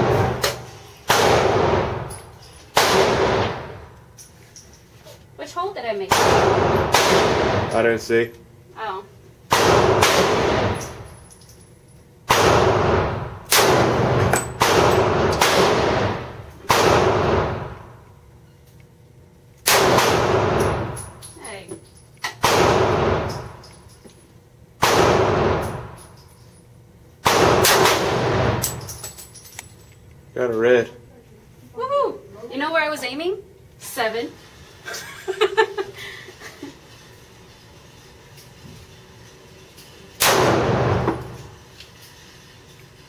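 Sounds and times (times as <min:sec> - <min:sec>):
gunshots with ringing echo: 0:02.8 - 0:03.8, 0:06.1 - 0:07.7, 0:09.5 - 0:11.0, 0:12.3 - 0:17.8, 0:19.7 - 0:21.0, 0:22.4 - 0:23.6, 0:24.8 - 0:25.9, 0:27.2 - 0:28.7, 0:40.2 - 0:41.3.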